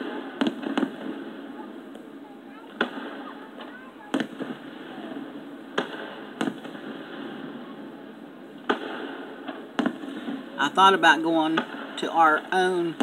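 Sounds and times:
fireworks bangs: 0.0s - 13.0s
steady background noise: 0.0s - 13.0s.

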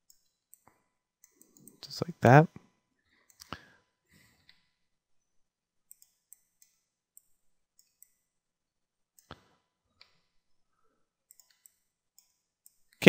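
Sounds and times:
mouse and keyboard clicks: 5.9s - 8.2s.

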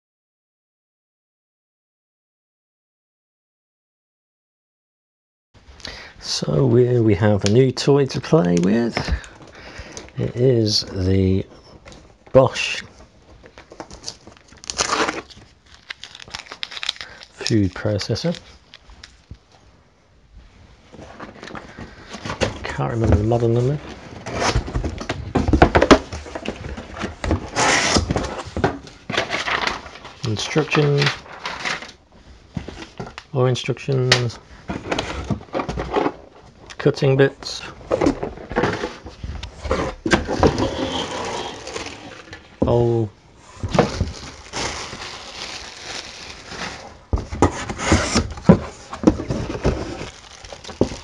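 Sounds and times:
plastic bag crinkling: 13.8s - 19.3s, 43.8s - 47.1s, 49.2s - 51.0s
cardboard sliding rustle: 20.8s - 30.1s, 37.9s - 42.5s, 43.4s - 51.0s.

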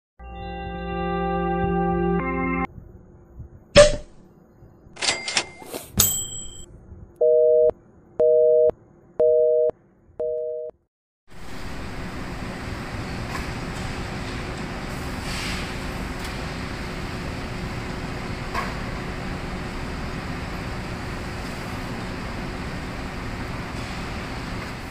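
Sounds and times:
telephone busy signal beeps: 7.2s - 10.7s
belt conveyor and machinery running: 11.3s - 24.9s.

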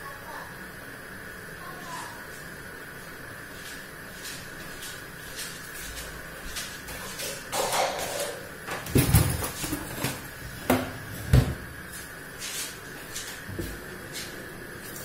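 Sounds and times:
dull kitchen knocks and thumps: 7.0s - 11.8s.

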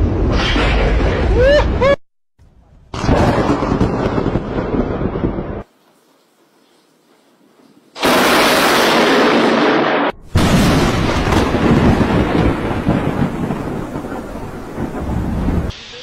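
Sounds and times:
thunder cracks and rumble: 2.9s - 5.7s, 8.0s - 15.8s.

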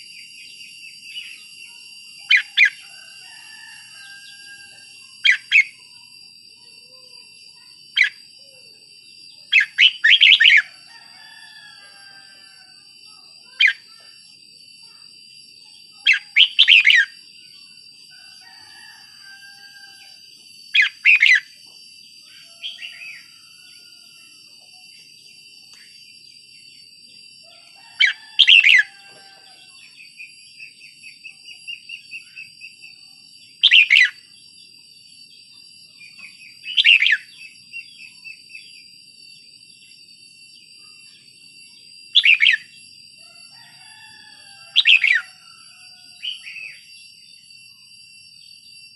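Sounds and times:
bird whistling phrases: 9.5s - 10.7s, 16.0s - 17.2s, 28.0s - 28.9s, 33.6s - 34.2s, 36.6s - 38.1s, 42.2s - 42.7s, 44.7s - 45.3s.

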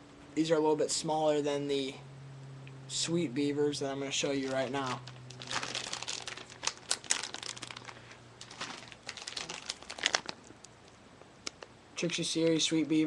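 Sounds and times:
plastic bag crinkling: 4.2s - 10.8s.

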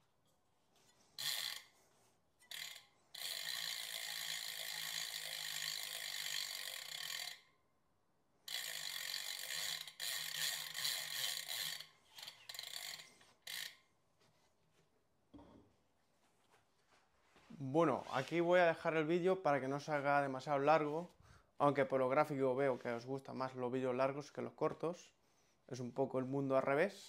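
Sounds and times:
bicycle freehub ratcheting: 0.8s - 7.6s, 8.4s - 13.9s.

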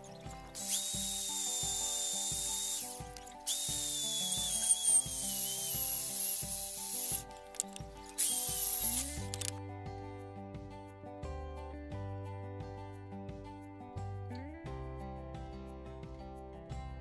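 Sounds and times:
electric drill with hole saw cutting wood: 0.0s - 9.5s.

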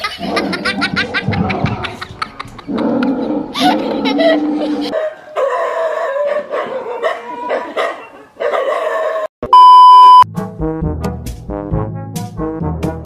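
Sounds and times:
loud steady beep: 9.5s - 10.3s.

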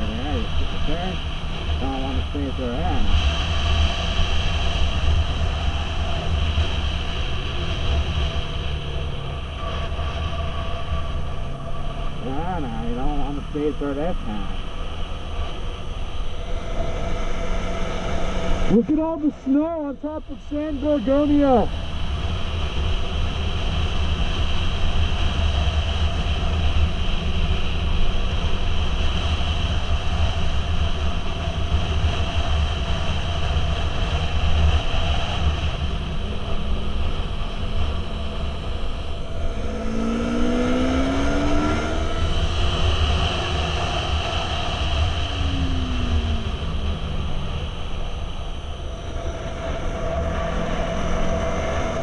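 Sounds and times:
motorcycle engine drone: 0.0s - 52.0s
wind rush on microphone: 20.9s - 52.0s.

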